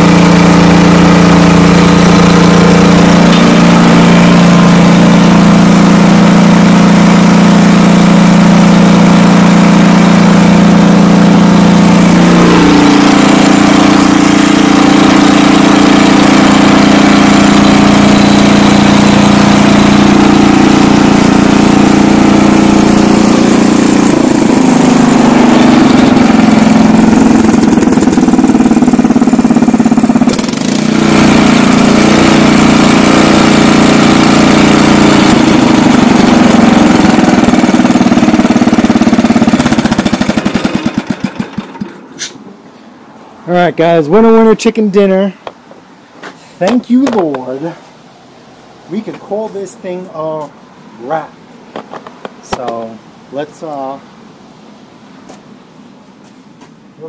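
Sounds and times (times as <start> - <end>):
tiller engine running: 0.0 - 42.3.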